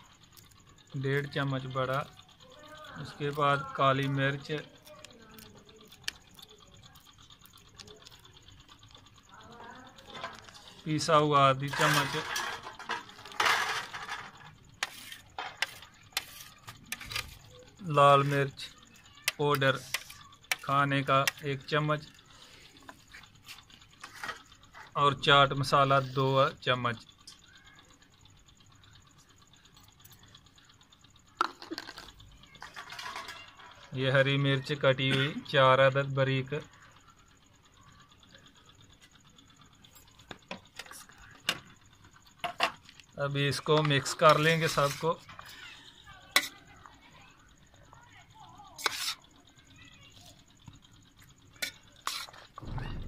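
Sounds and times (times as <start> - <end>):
faint rapid ticking: 0.0 - 53.0
metal spoon scraping a steel plate: 10.2 - 21.7, 43.6 - 45.6, 46.4 - 46.6, 48.8 - 49.2, 51.6 - 52.6.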